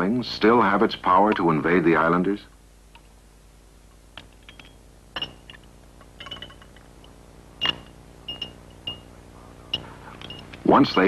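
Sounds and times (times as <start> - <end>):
faint steady hum: 0.0 - 11.0
glassware clinking: 4.4 - 9.1.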